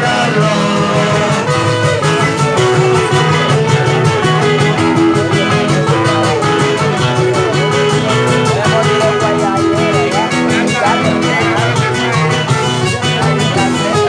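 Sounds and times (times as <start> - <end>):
guitar group playing merengue: 0.0 - 14.0.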